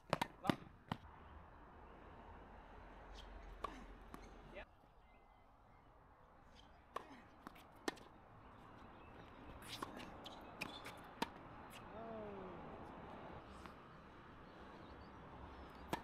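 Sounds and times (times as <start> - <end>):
tennis ball pocks: 0.0 - 1.0.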